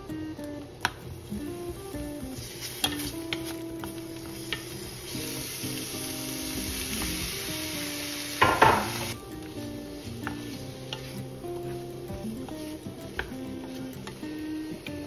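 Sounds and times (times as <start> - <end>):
onions sizzling in a frying pan: 0.0 - 15.0
wooden spoon tapping a pan: 8.4 - 9.0.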